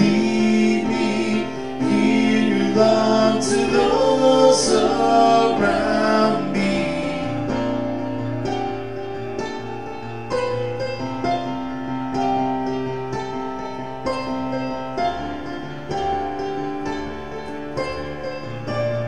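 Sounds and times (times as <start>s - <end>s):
man and woman singing: 0.0s - 7.7s
electric keyboard: 0.0s - 19.0s.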